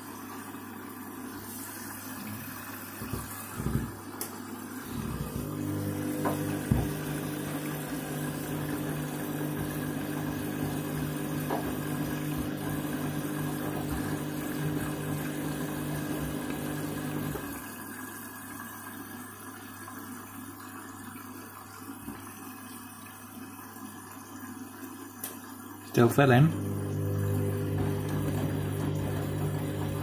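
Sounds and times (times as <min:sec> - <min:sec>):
washing machine drum motor whirring: 0:00.0 - 0:17.8, 0:26.2 - 0:30.0
water running in and sloshing: 0:00.0 - 0:30.0.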